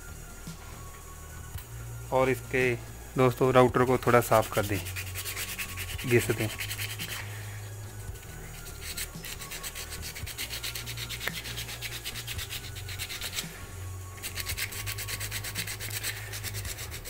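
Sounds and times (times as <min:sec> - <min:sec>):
sandpaper scouring metal: 0:03.9 - 0:07.3, 0:08.0 - 0:17.0.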